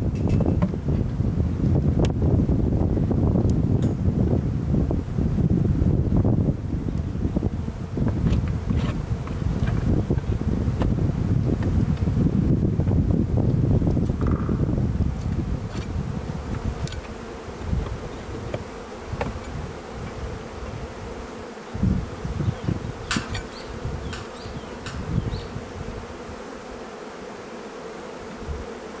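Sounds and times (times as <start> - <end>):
honeybees buzzing: 0.0 - 29.0
low thumps: 8.0 - 20.9.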